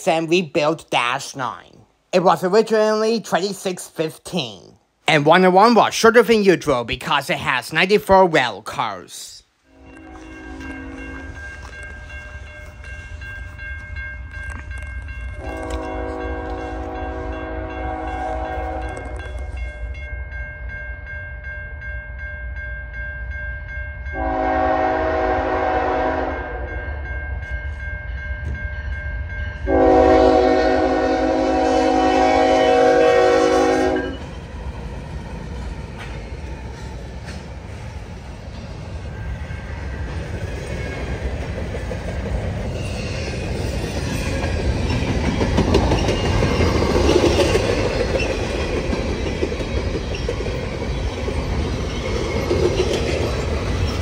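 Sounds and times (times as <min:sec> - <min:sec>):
freight train rumbling: 0:05.4 - 0:20.7, 0:24.0 - 0:54.0
locomotive air horn blasts: 0:15.4 - 0:19.0, 0:24.2 - 0:26.7, 0:29.7 - 0:34.2.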